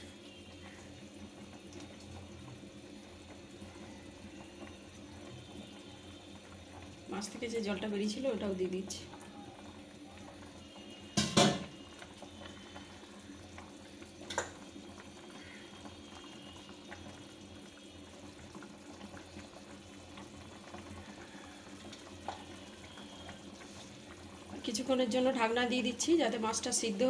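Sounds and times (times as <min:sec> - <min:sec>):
gravy bubbling in a pan: 0:00.0 - 0:27.0.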